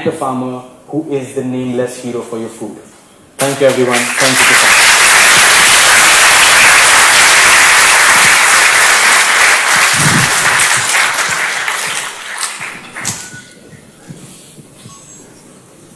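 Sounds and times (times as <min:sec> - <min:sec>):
audience applauding: 0:03.4 - 0:13.2.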